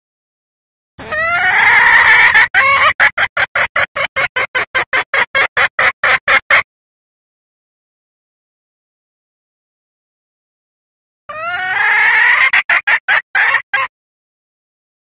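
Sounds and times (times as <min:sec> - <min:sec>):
hen cackling and clucking: 0:01.0 - 0:06.7, 0:11.3 - 0:13.9.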